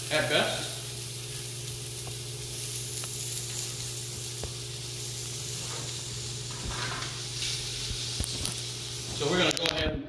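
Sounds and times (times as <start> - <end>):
asparagus sizzling in skillet: 0.0 - 9.8
gas burner low hum: 0.0 - 10.0.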